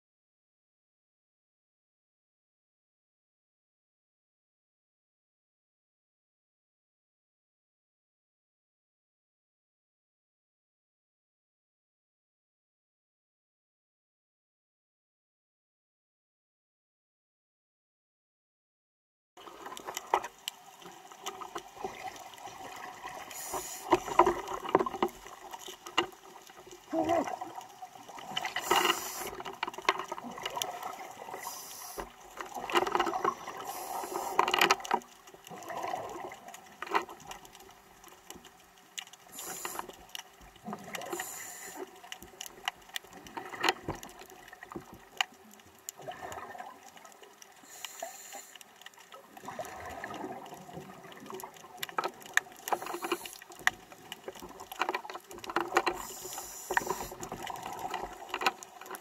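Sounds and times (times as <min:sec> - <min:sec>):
underwater regulator bubbles: 0:21.2 - 0:37.4, 0:46.0 - 0:46.9, 0:49.4 - 0:59.0.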